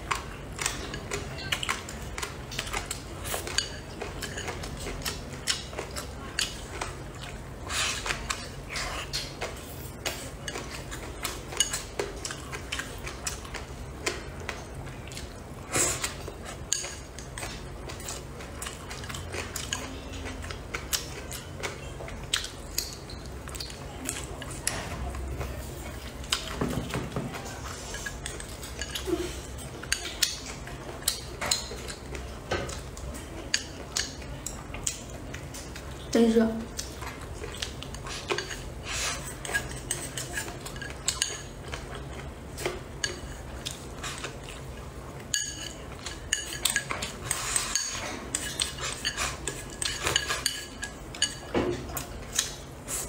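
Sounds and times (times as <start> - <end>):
chewing and slurping noodles: 0.0 - 24.8, 36.7 - 53.0.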